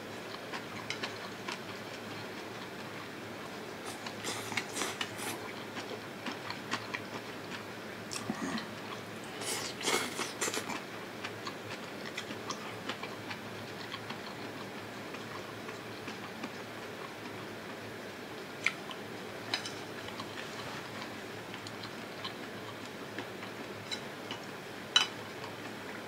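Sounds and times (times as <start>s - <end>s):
person chewing food: 3.8s - 17.4s.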